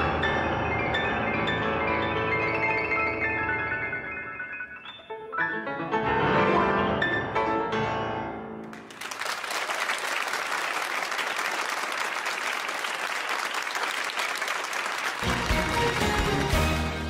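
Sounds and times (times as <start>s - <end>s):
grand piano notes ringing: 0.0s - 8.6s
audience applauding: 8.6s - 17.0s.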